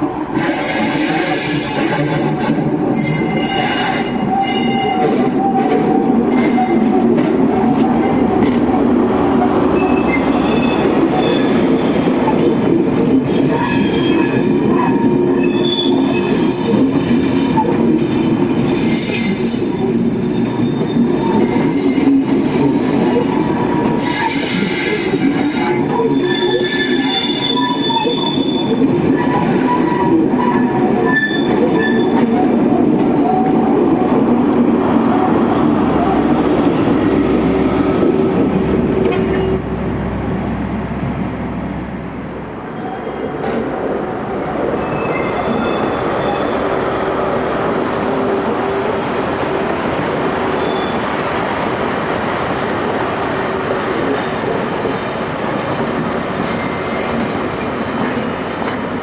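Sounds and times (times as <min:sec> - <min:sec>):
train wheels rumbling: 0:00.0 - 0:59.0
wheels squealing: 0:33.0 - 0:33.6.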